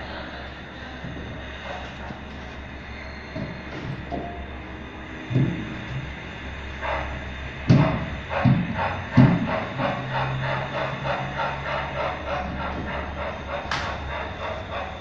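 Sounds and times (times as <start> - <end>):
model steam locomotive chuffing: 0.0 - 15.0
heavy thumps: 5.3 - 6.0.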